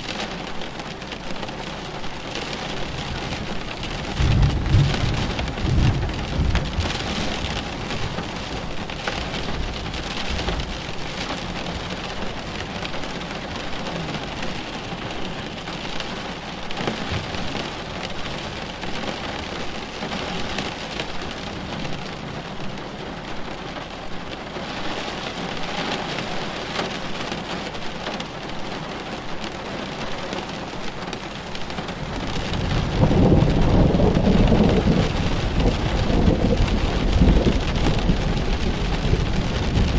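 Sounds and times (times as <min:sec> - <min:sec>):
rain pattering: 0:00.0 - 0:39.9
low rumble of thunder: 0:02.1 - 0:23.3, 0:31.8 - 0:39.9.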